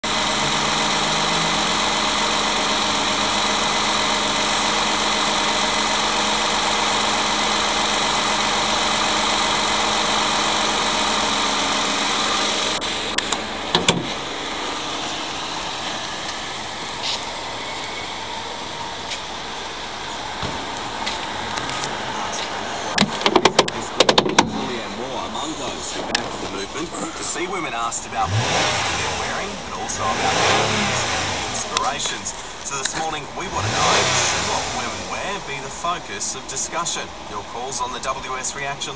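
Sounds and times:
car engine idling: 0.0 - 38.9.

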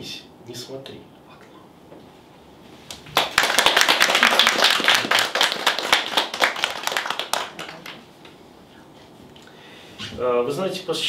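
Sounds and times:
small audience applauding: 2.9 - 8.1.

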